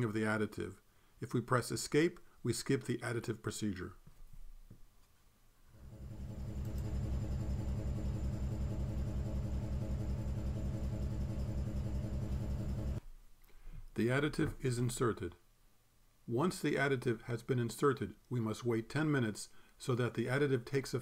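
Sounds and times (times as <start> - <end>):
pump pulsing: 5.8 - 13.0.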